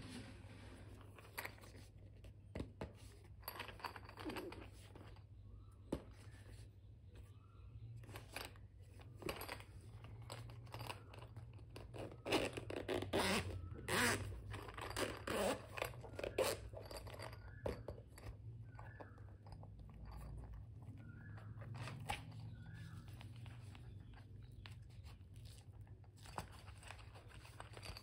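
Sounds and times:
zipper and hard case scraping: 11.7 - 17.2.

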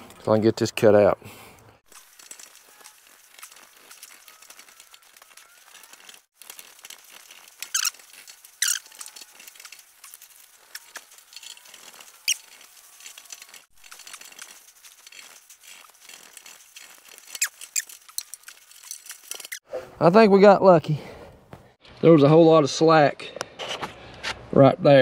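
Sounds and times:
squeaky scrapes: 1.9 - 19.6.

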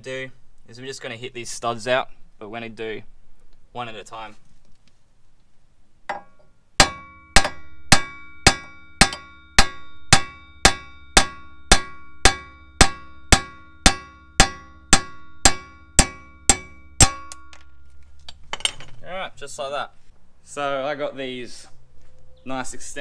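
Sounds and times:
hammer striking metal stud: 6.1 - 17.7.

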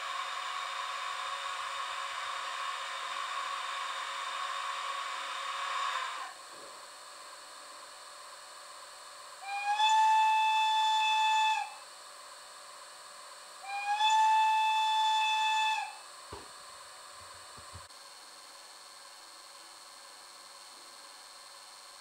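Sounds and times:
model train horn blasts: 9.4 - 11.8, 13.6 - 16.0.

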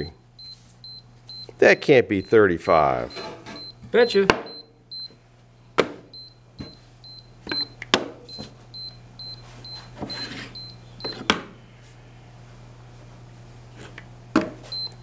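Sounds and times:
moisture meter short high beeps: 0.4 - 2.4, 3.1 - 3.8, 4.5 - 5.1, 6.2 - 11.2, 14.7 - 15.0.

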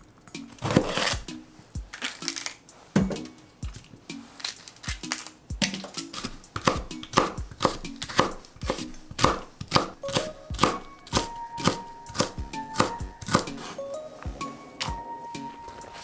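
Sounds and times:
knife chopping on wooden board: 5.6 - 13.8.

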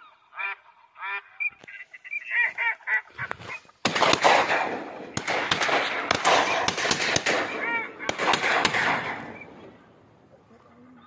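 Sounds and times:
ducks quacking: 0.0 - 3.7, 7.2 - 11.0
branches rustling on microphone: 1.5 - 3.9.

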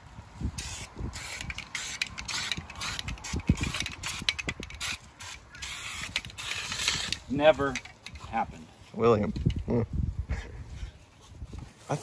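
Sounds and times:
spray paint can hissing: 0.6 - 7.3.

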